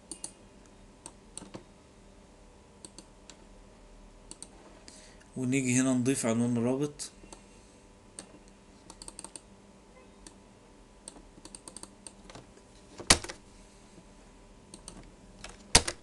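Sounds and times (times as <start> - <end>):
computer keyboard typing: 8.9 - 9.4, 11.1 - 12.2.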